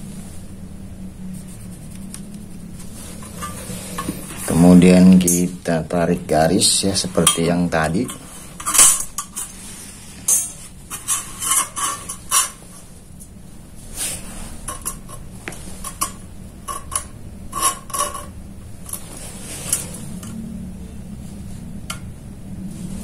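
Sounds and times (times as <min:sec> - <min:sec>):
metal tools clinking on steel plate: 0:06.7 - 0:09.6, 0:10.2 - 0:12.7, 0:14.7 - 0:19.1.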